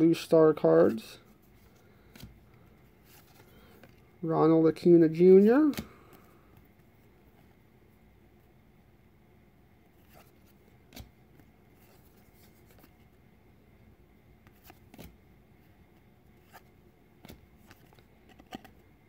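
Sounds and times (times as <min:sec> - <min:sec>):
trading cards rustling and ticking: 0:00.6 - 0:07.0, 0:16.4 - 0:18.9.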